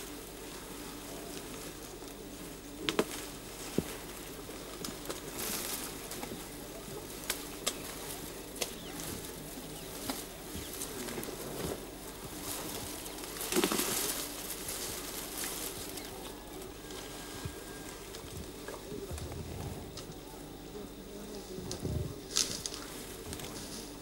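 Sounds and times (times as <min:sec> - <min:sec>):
rustling in dry grass: 0:00.0 - 0:24.0.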